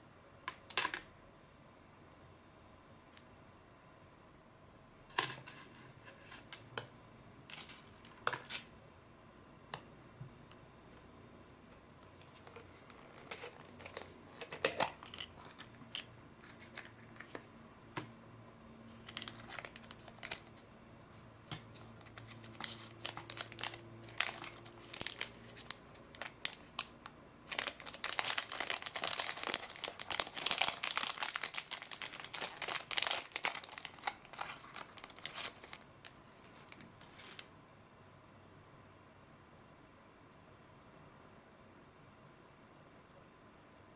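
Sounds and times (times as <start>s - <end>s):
plastic bag crinkling: 12.2s - 17.4s, 18.9s - 20.6s, 22.0s - 37.5s.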